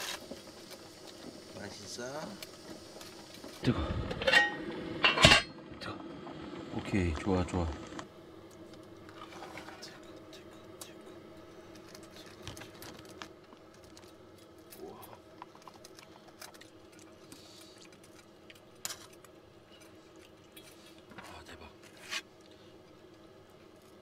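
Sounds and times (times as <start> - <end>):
steady low hum: 0.0 - 24.0
camp cookware clattering: 4.2 - 5.6.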